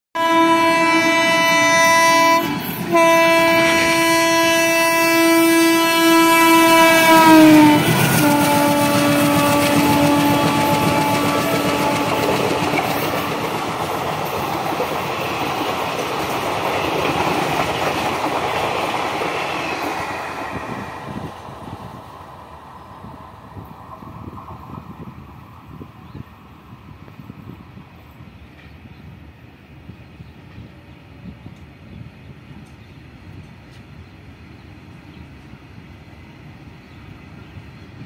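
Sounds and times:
locomotive horn: 0.2s - 13.4s
train coaches clattering past: 0.2s - 38.0s.

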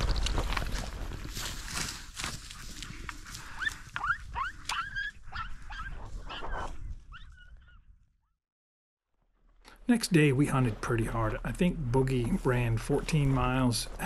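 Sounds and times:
footsteps through dry brush: 0.0s - 7.1s.

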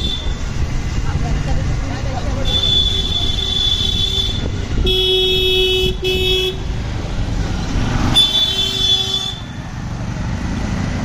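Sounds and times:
vehicle horns honking: 0.0s - 0.4s, 2.4s - 6.7s, 8.1s - 9.6s
rumble of engines: 0.0s - 11.0s.

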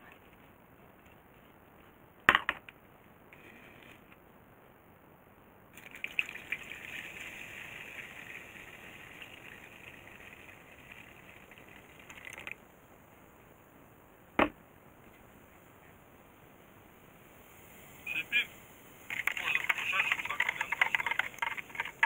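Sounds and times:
water splashing into plastic jug: 5.8s - 12.6s.

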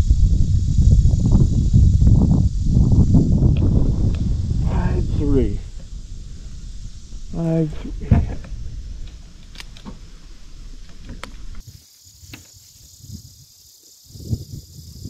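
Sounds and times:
insects droning: 0.0s - 15.0s
handling noise rumble: 0.4s - 11.6s.

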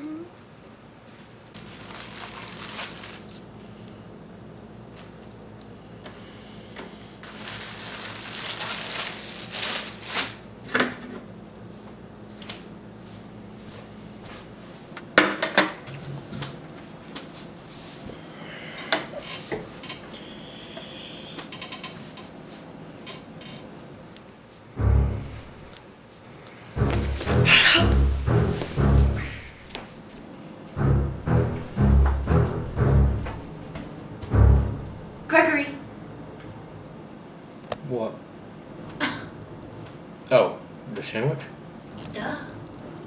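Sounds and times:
plastic bread bag rustling: 0.4s - 3.4s, 7.2s - 10.4s
low steady hum: 24.7s - 25.8s, 26.8s - 29.8s, 30.8s - 35.7s.

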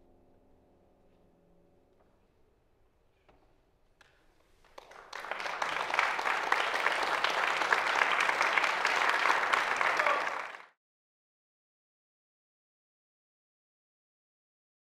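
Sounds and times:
audience applause: 4.6s - 10.8s.

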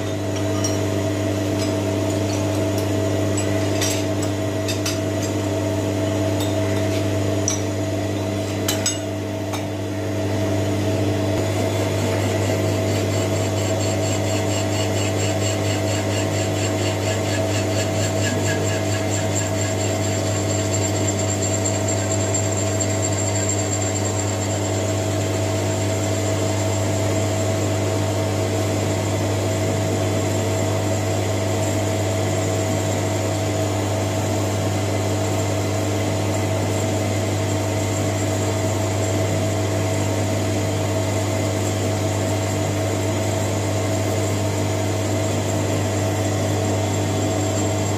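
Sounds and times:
pulsing ring of metal cutting: 8.7s - 9.8s, 11.4s - 27.8s
lathe motor hum: 9.8s - 32.5s.

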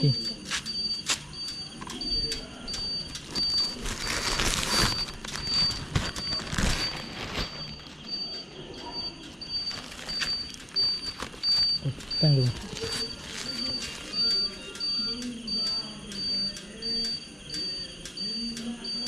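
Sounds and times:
high-pitched electronic beep: 0.0s - 19.0s
rustling noise: 2.8s - 8.2s.

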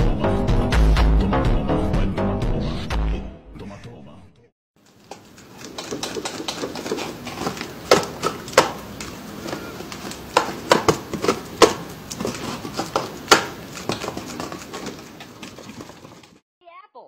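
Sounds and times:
paper rustling and crinkling: 4.8s - 16.4s.

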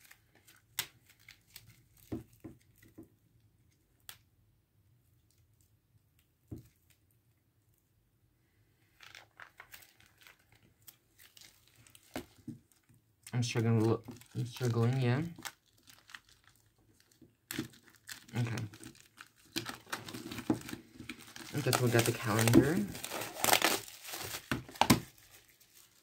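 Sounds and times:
packaging crinkling: 8.9s - 26.0s.

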